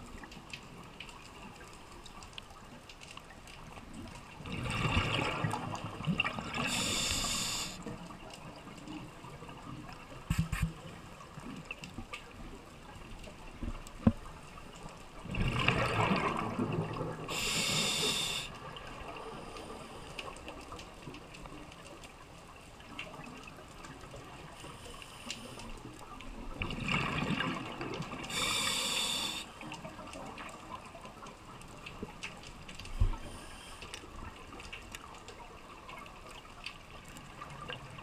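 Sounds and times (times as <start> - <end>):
underwater bubbling rush: 3.6 - 11.8, 13.5 - 21.7, 22.5 - 38.0
regulator high hiss: 6.7 - 7.8, 17.3 - 18.5, 28.3 - 29.5.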